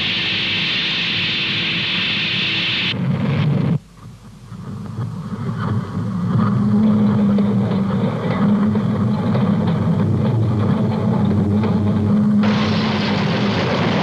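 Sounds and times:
steady hum: 0:00.0 - 0:14.0
locomotive rumble: 0:03.0 - 0:14.0
hiss: 0:12.4 - 0:14.0.

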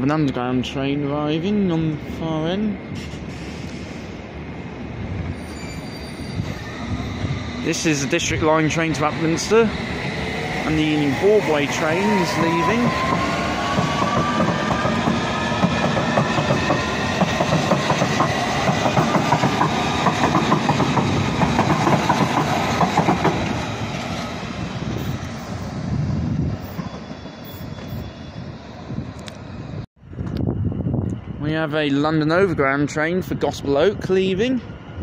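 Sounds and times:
traction motors whining: 0:05.2 - 0:22.0
train wheels clattering over track: 0:11.9 - 0:23.8.

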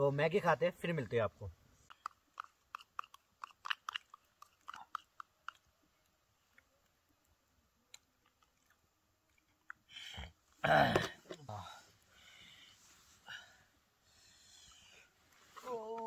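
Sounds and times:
eating crunches and clicks: 0:01.9 - 0:05.8, 0:07.9 - 0:09.9.

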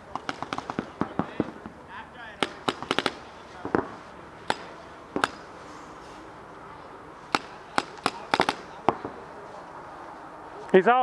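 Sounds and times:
paintball markers firing: 0:00.1 - 0:01.7, 0:02.4 - 0:05.5, 0:07.3 - 0:09.2.

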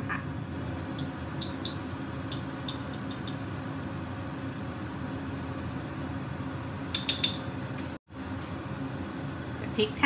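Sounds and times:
appliance fan humming: 0:00.0 - 0:10.0
spoon clicking against tub: 0:01.0 - 0:03.4, 0:06.9 - 0:07.5.

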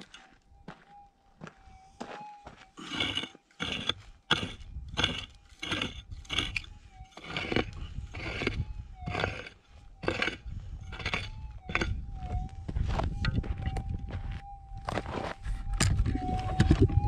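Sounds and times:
pick striking stony ground: 0:02.0 - 0:06.6.

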